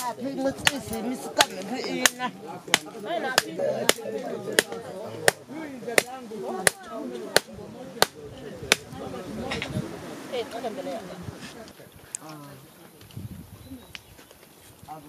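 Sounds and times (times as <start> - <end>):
voices talking: 0.0 - 15.0.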